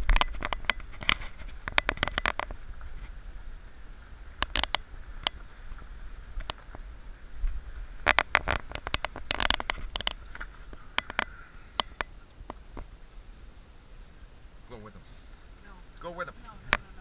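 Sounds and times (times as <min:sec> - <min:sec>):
muffled vehicle engine rumble: 0:00.0 - 0:17.0
sharp knocks and clicks: 0:08.0 - 0:12.9.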